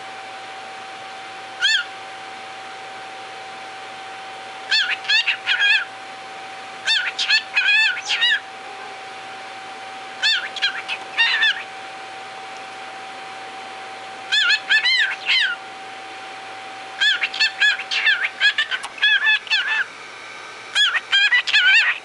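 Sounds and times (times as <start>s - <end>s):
faint steady hum: 0.0s - 22.0s
cockatiel chirping: 1.6s - 1.9s, 4.7s - 5.9s, 6.9s - 8.4s, 10.2s - 11.7s, 14.3s - 15.6s, 17.0s - 19.9s, 20.7s - 22.0s.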